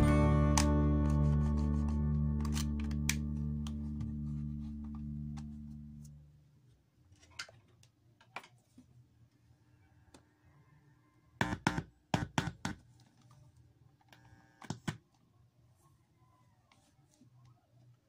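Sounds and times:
audio plug clicking into jack: 0:02.4 - 0:04.1.

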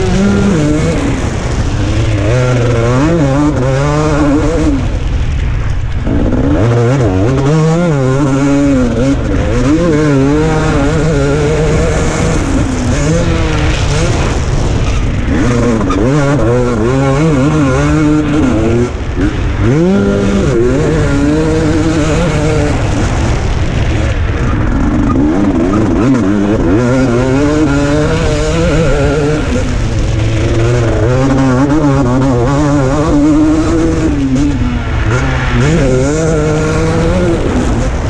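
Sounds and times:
motocross engine revving: 0:00.0 - 0:38.0.

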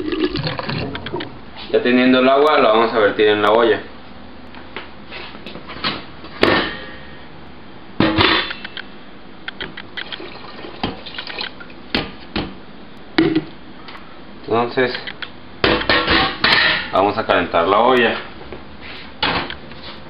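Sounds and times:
metal pots and lid clanking: 0:15.7 - 0:16.9.

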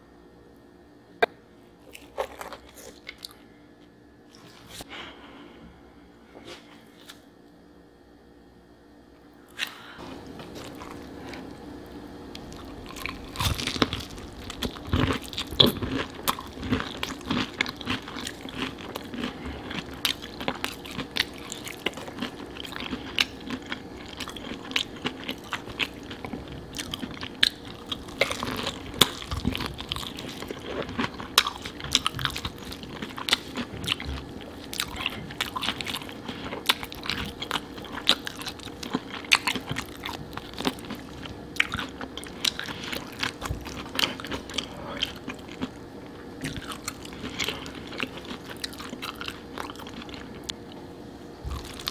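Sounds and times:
wet chewing: 0:09.6 - 0:11.6, 0:12.3 - 0:50.8, 0:51.5 - 0:51.9
crunching crispy fried chicken: 0:12.3 - 0:50.6, 0:51.5 - 0:51.9.

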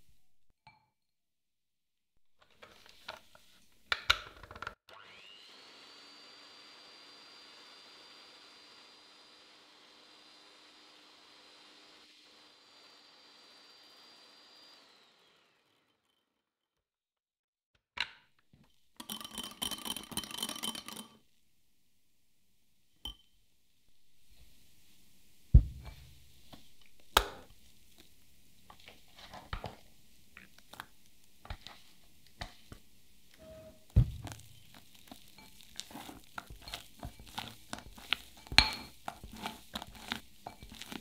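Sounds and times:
whisk scraping in glass bowl: 0:33.4 - 0:41.0
utensils knocking on glass bowl: 0:38.4 - 0:39.5.

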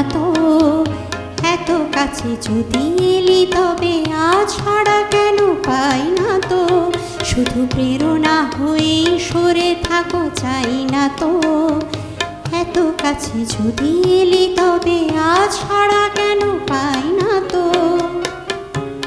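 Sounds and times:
woman singing: 0:00.0 - 0:18.6
tabla strokes: 0:00.0 - 0:19.0.

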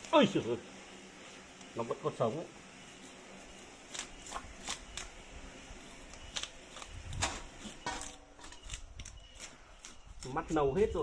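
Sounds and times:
knife scraping fish scales: 0:03.8 - 0:05.2, 0:05.8 - 0:10.6.

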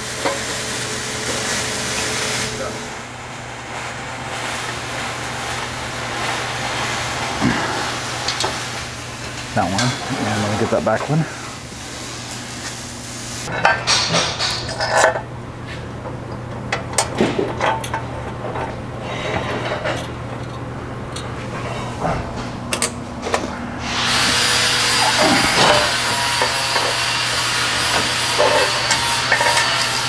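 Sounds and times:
loud steady hissing: 0:00.0 - 0:14.6, 0:23.5 - 0:30.0
steady low hum: 0:02.4 - 0:30.0
metal bolts clicking and clinking: 0:16.3 - 0:21.3, 0:27.9 - 0:30.0.

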